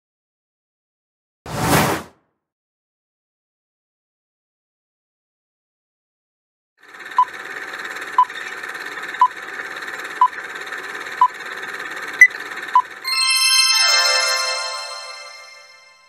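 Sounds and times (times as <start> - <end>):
bright chime: 13.1 - 16.0.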